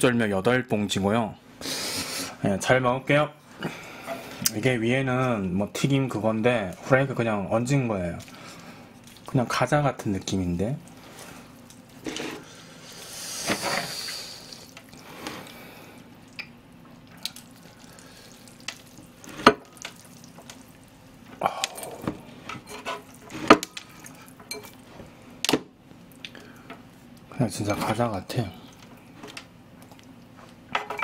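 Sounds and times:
chewing with sharp clicks: 28.7 - 30.3.

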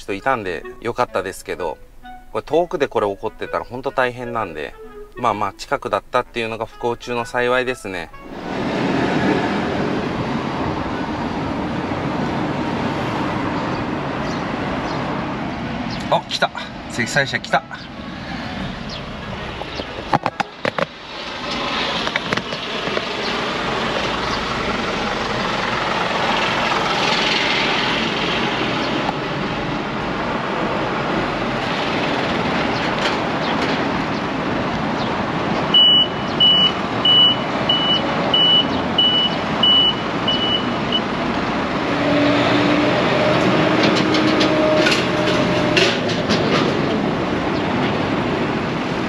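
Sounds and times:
truck engine running: 18.6 - 41.9
reverse alarm beeping: 35.7 - 41.1.

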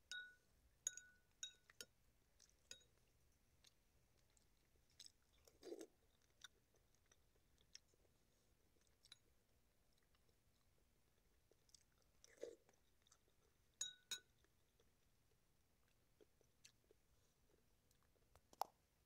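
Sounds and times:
soft chewing: 0.0 - 19.0
spoon clinking against ceramic bowl: 0.1 - 2.0, 2.6 - 3.0, 13.8 - 14.4.

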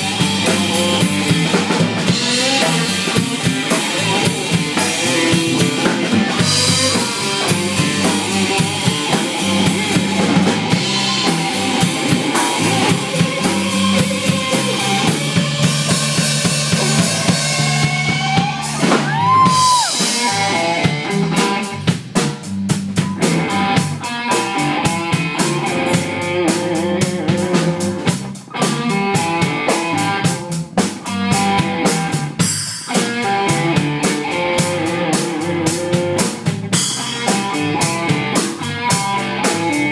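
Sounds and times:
drum kit: 0.0 - 39.9
electric guitar playing lead: 0.0 - 39.9.

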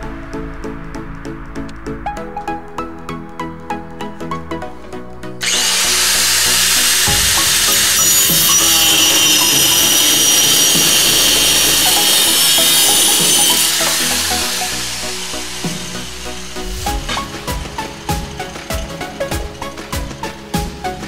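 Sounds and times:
rotary tool cutting metal: 5.4 - 19.4.

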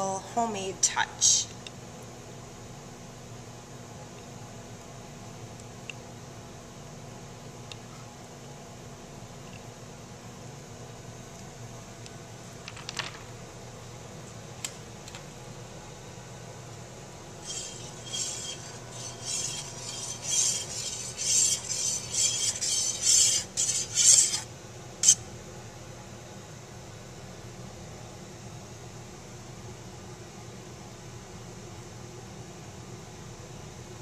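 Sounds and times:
metal spoon scraping a pot: 17.4 - 24.4.

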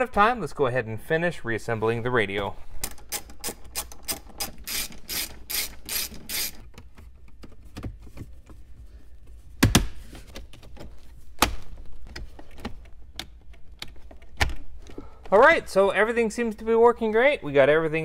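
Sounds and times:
hand ratchet clicking: 2.9 - 6.8.

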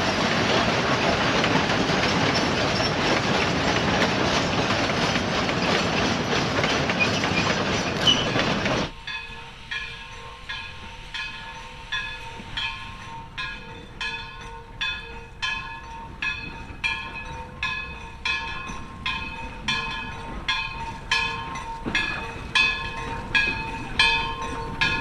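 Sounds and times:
steam locomotive chuffing: 0.0 - 25.0
train rumbling past: 0.0 - 25.0.

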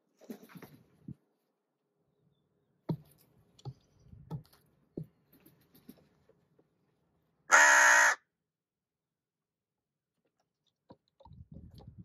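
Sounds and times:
taps and knocks on wood: 2.9 - 5.2
crow cawing: 7.5 - 8.3.

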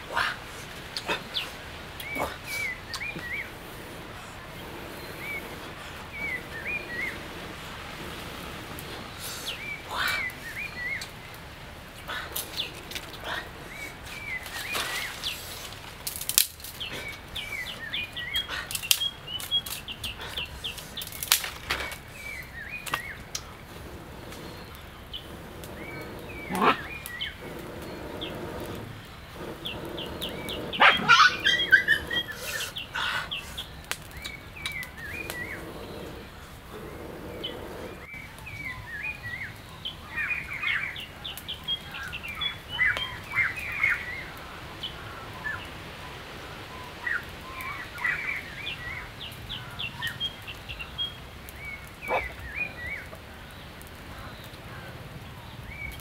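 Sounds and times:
forest birds chirping: 0.0 - 56.0
dry twigs snapping: 12.3 - 38.5.

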